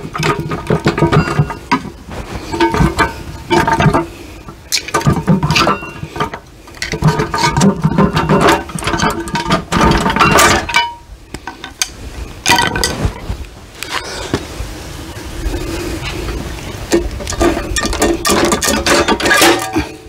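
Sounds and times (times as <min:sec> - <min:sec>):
pry bar clinking and scraping metal: 0:17.3 - 0:20.0.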